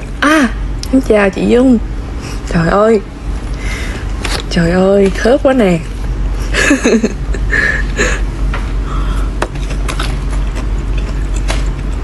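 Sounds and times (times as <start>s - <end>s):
steady low hum: 0.0s - 12.0s
person laughing: 6.4s - 8.3s.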